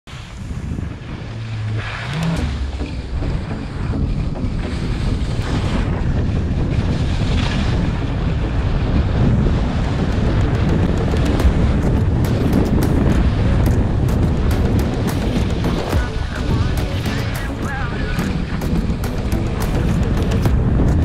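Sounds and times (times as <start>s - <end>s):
wind buffeting microphone: 0.1s - 21.0s
skis scraping snow: 4.9s - 8.0s.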